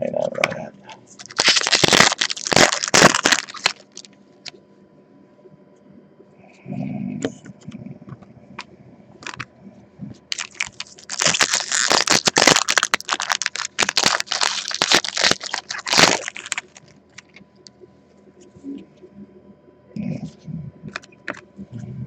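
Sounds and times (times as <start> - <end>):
wrapper crackling and tearing: 1.2 - 4.1, 10.3 - 17.4.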